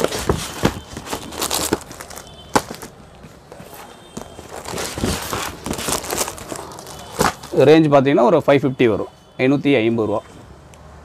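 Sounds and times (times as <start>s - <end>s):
handling knocks and clicks: 0.0s - 7.6s
rustling: 0.0s - 7.6s.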